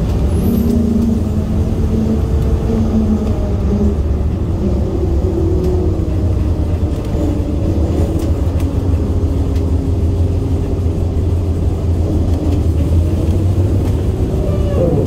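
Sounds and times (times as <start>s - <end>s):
faint engine drone: 0.0s - 15.0s
light ticks: 9.4s - 9.7s.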